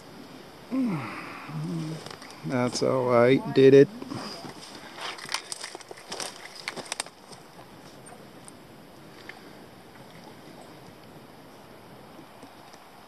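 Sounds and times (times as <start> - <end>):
faint outdoor ambience: 0.0 - 13.0
twigs snapping underfoot: 5.0 - 7.4.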